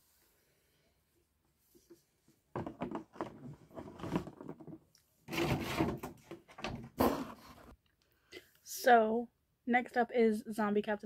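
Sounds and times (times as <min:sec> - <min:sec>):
knocks and scrapes: 0:01.8 - 0:07.8.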